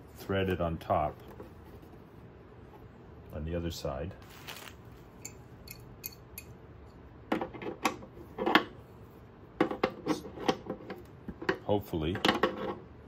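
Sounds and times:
pliers clinking on metal nut: 5.2 - 6.5.

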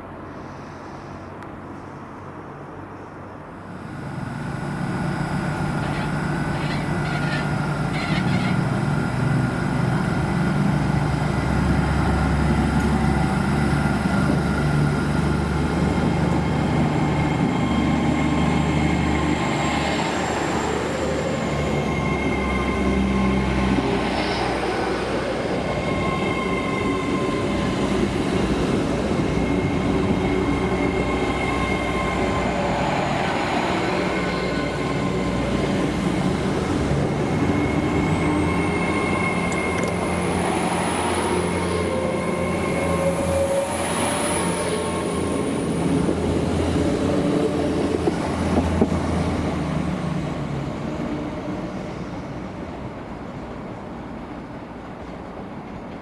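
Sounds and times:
train diesel engine drone: 0.0 - 56.0.

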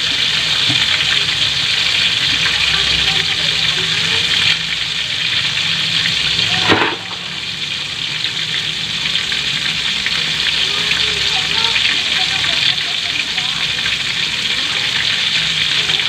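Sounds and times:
chicken sizzling in hot oil: 0.0 - 16.0
short sharp sound: 6.6 - 7.4.

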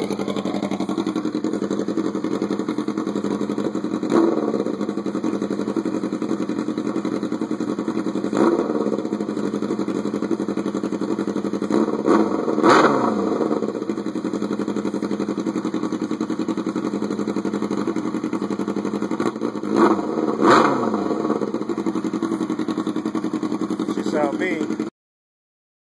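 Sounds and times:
motorcycle engine idling: 0.0 - 24.9
engine revving: 3.5 - 5.4, 8.2 - 10.2, 11.6 - 13.9, 19.1 - 21.8.

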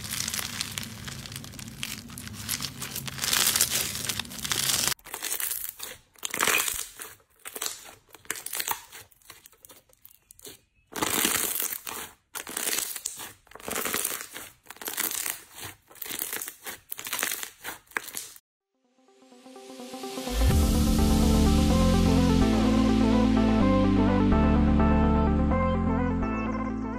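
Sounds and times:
slime squishing and crackling: 0.0 - 18.4
electronic music: 18.8 - 26.9.

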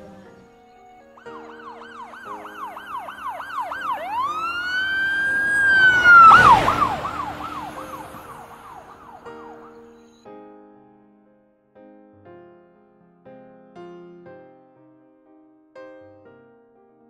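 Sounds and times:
siren yelping and wailing: 1.2 - 9.7
loud rush of noise: 1.5 - 9.7.

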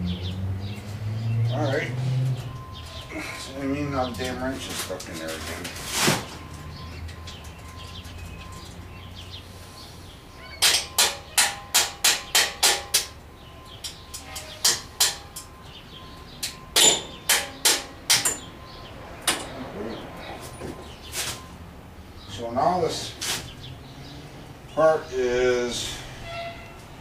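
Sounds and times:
hammer tapping on metal: 10.6 - 13.2, 13.9 - 15.5, 16.4 - 18.5.

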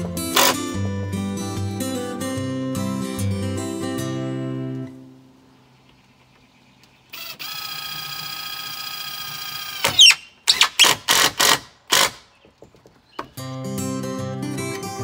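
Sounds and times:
screw driving bursts: 0.0 - 1.0, 7.1 - 12.4
music: 0.0 - 5.2, 13.4 - 15.0
cordless driver motor whine: 7.2 - 10.1.

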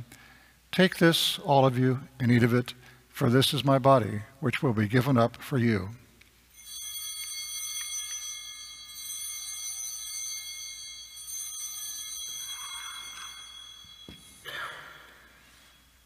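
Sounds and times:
altar bells ringing: 6.5 - 16.0.

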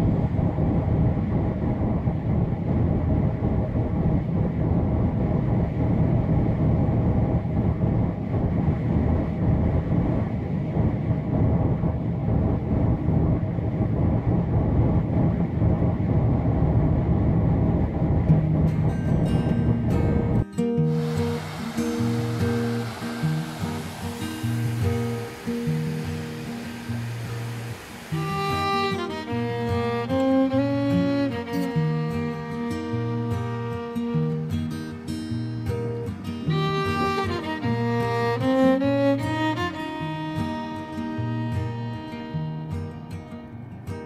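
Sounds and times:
car road and engine rumble: 0.0 - 28.8
faint constant hum: 0.0 - 44.0.

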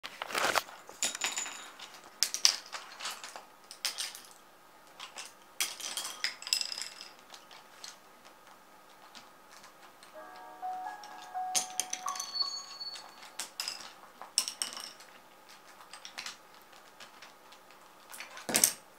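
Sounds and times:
pens clattering on wooden floor: 1.0 - 8.0, 13.6 - 17.4, 18.1 - 18.8.

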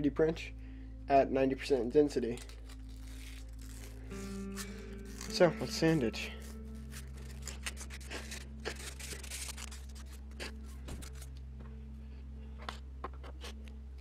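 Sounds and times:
sandpaper rubbing on plastic: 6.4 - 11.2.

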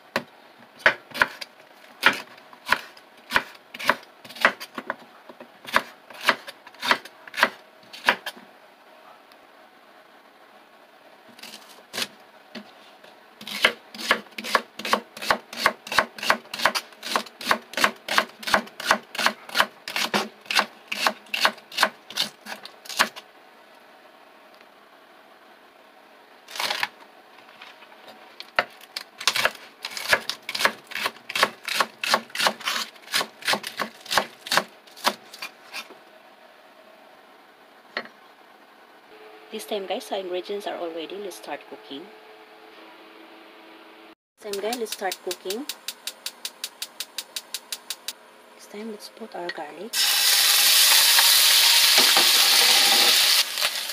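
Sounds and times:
knife chopping on wooden board: 2.0 - 4.9, 5.7 - 8.3, 13.4 - 22.3, 29.3 - 35.2.

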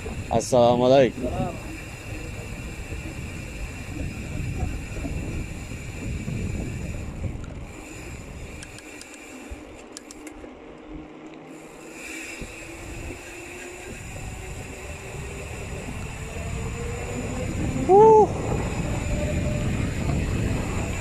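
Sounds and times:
wind buffeting microphone: 0.0 - 11.1, 12.3 - 21.0
tyre noise on asphalt: 0.0 - 21.0
light ticks: 8.6 - 11.5.

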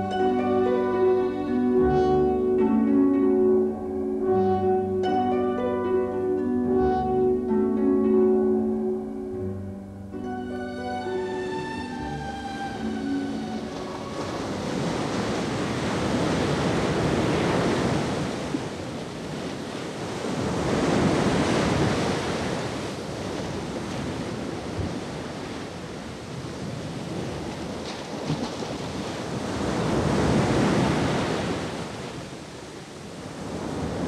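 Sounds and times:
plucked string music: 0.0 - 15.6
sea waves washing in: 11.0 - 34.0.

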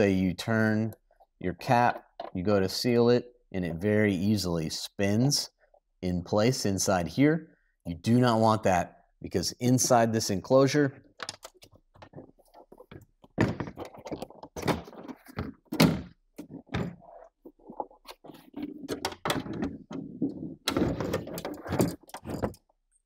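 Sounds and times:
plastic knocks clicks and thuds: 11.2 - 17.9, 18.5 - 22.6.

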